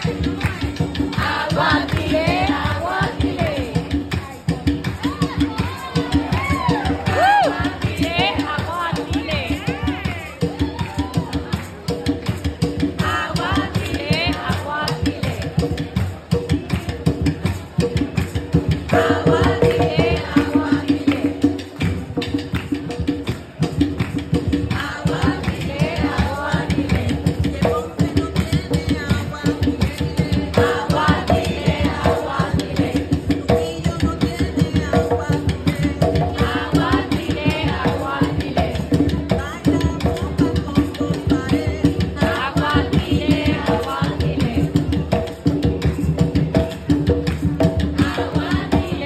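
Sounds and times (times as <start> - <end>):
woman singing: 0.0 - 11.4, 12.9 - 15.6, 18.9 - 21.6, 24.7 - 44.9, 47.9 - 49.0
hand drums playing: 0.0 - 49.0.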